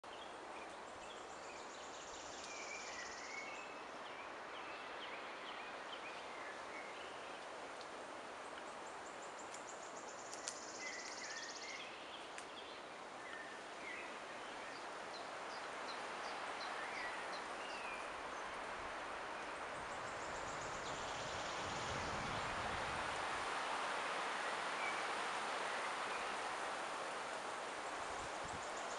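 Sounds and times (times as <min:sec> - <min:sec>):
wind rushing through pine trees: 0:00.0 - 0:28.9
small birds chirping: 0:08.4 - 0:22.6.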